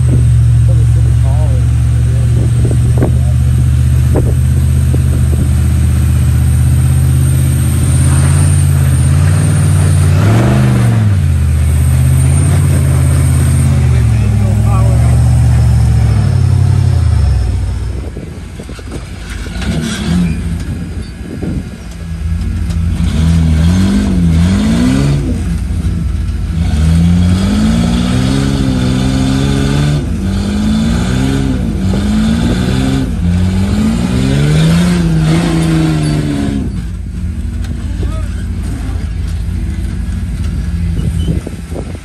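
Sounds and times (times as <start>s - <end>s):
buggy engine revving: 0.0s - 42.0s.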